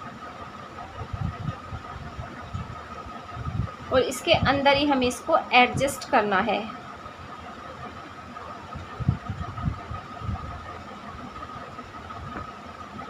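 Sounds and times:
high-pitched hum: 0.8s - 13.0s
dull low thumps: 9.0s - 10.6s.

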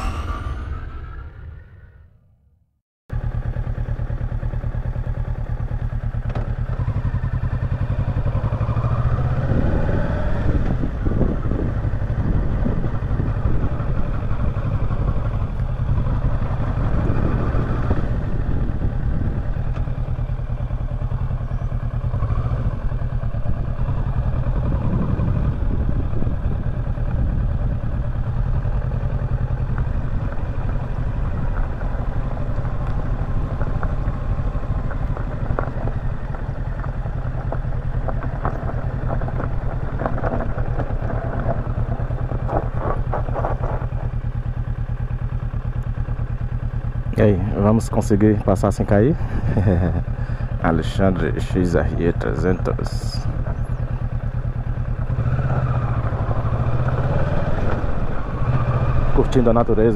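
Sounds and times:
motorcycle engine running: 3.1s - 59.9s
wind rushing on microphone: 9.2s - 15.1s, 16.6s - 19.6s, 24.6s - 28.0s.

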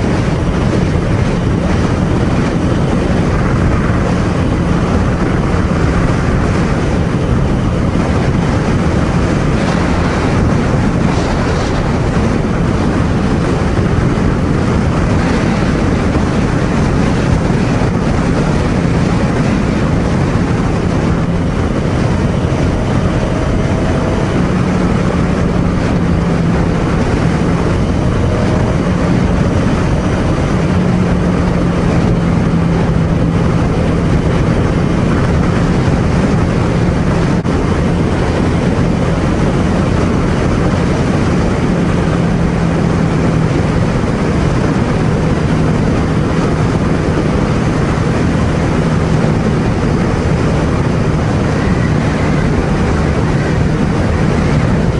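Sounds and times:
motorcycle engine cruising: 0.0s - 54.9s
road noise: 0.0s - 54.9s
wind rush on microphone: 0.0s - 54.9s.

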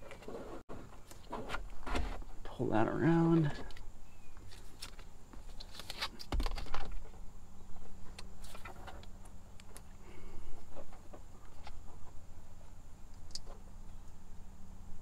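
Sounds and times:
bungee cord clicks and rattles: 13.1s - 14.2s.

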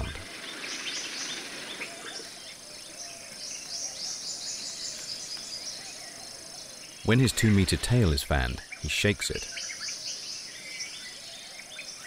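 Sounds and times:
steady hiss: 7.1s - 9.4s.

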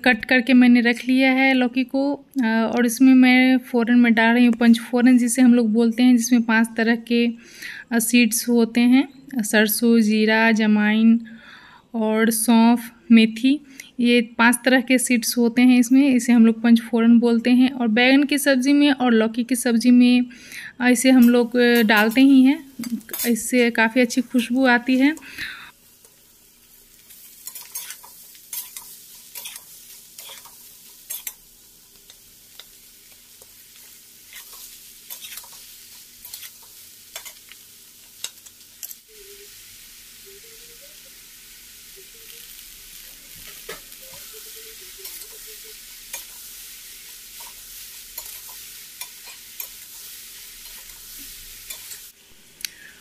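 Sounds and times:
vegetables sizzling in hot oil: 20.8s - 52.9s
spatula scraping metal pan: 27.4s - 31.4s, 34.3s - 37.4s.

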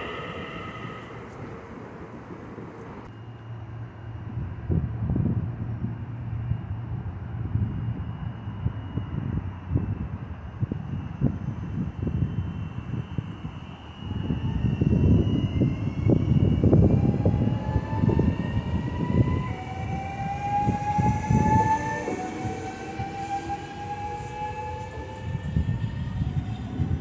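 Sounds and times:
train wheels rumbling on rails: 0.0s - 3.1s, 14.5s - 27.0s
electric traction motor whine: 0.0s - 27.0s.

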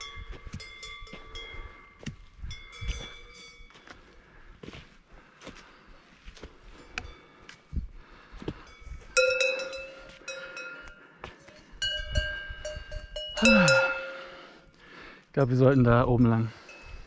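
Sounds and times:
cowbells clanking: 0.0s - 3.9s, 8.6s - 14.7s, 15.4s - 17.0s.

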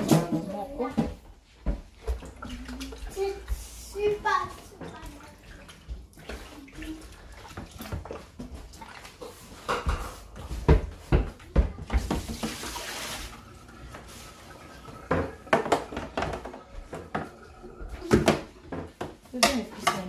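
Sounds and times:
vegetables and bowl clattering: 15.0s - 20.0s.

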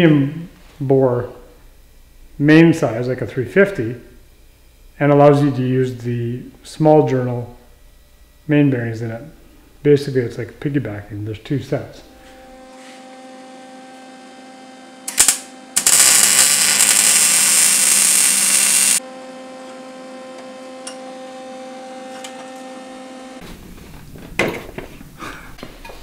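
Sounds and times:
electrical hum: 0.0s - 26.0s
welding arc noise: 13.6s - 23.4s.

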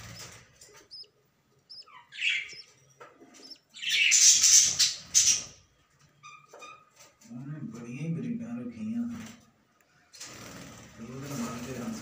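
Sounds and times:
budgerigars chirping: 0.0s - 5.6s.

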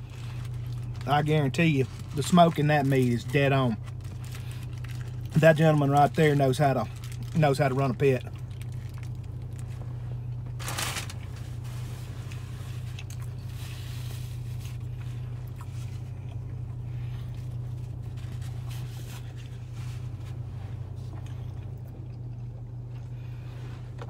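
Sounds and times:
paper wrapper rustling: 0.0s - 9.8s, 10.5s - 14.9s
car cabin hum: 0.0s - 24.0s
soft chewing: 12.2s - 24.0s.

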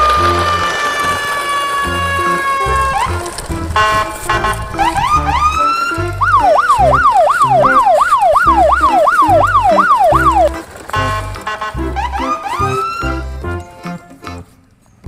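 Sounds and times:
siren whoops: 0.0s - 3.2s, 4.8s - 10.5s
electronic siren wailing: 0.0s - 3.9s, 4.8s - 10.6s.

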